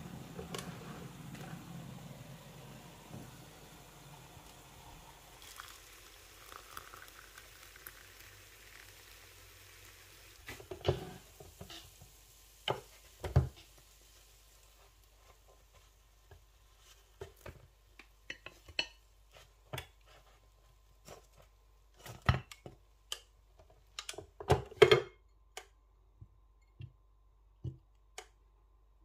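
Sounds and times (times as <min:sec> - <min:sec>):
water pouring into a mug: 0:00.2 - 0:11.6.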